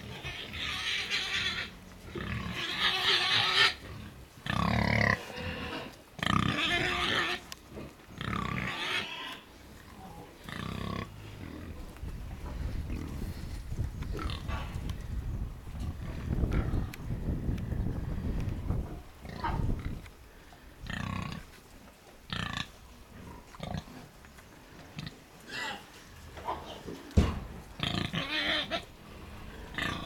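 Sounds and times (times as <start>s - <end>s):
pig crying: 2.4s - 3.8s, 4.6s - 7.4s, 8.3s - 9.4s, 27.8s - 28.9s.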